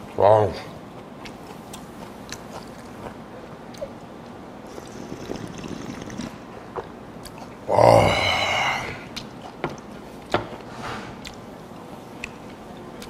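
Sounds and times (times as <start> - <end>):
man sipping and slurping broth: 4.7 - 6.4.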